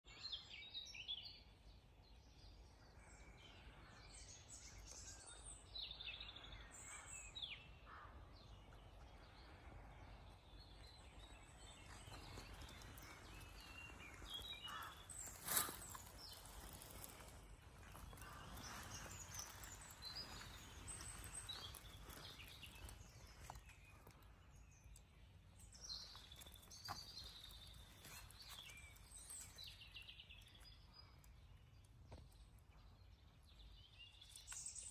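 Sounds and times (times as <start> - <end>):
bird chirps and calls: 2.5 - 31.4.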